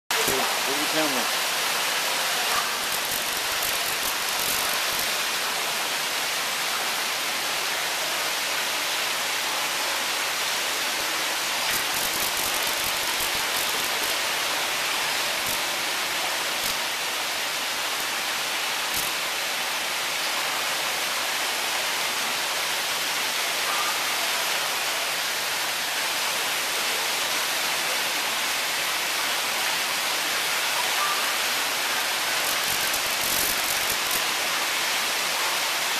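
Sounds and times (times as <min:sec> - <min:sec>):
steady rushing noise: 0:32.2 - 0:34.3.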